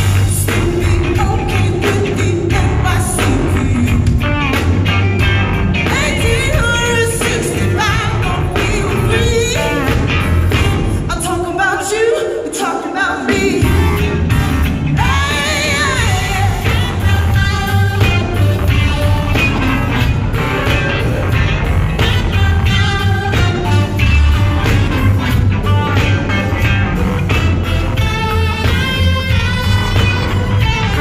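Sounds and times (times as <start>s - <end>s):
heavy bass line: 0.0s - 11.1s, 13.6s - 31.0s
live band playing: 0.0s - 31.0s
woman singing with vibrato: 0.1s - 4.4s, 5.9s - 20.8s, 22.0s - 24.9s.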